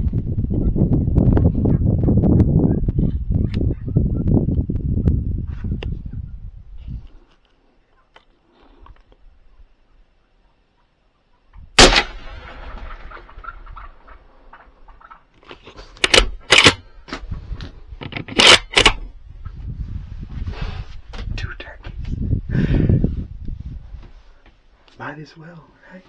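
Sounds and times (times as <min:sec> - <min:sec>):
rifle shot with echo: 0:11.8 - 0:14.2.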